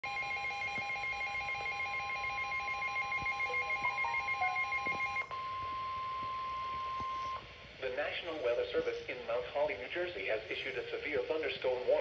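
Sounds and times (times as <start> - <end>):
steady alarm tone: 0.0 - 7.4
rapid alternating electronic beeps: 0.1 - 7.4.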